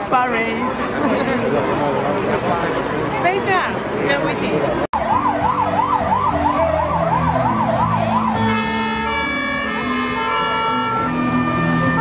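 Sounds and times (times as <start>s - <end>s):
melody of held notes: 5.0s - 12.0s.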